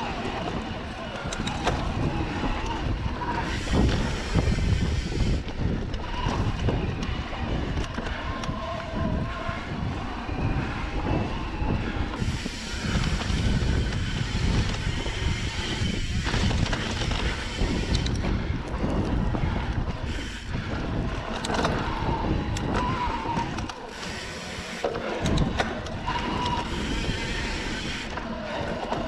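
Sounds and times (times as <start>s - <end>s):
bike knocks and rattles: 0.0s - 11.3s, 12.2s - 23.8s
tyres rolling over dirt trail: 0.0s - 29.0s
wind buffeting microphone: 0.0s - 29.0s.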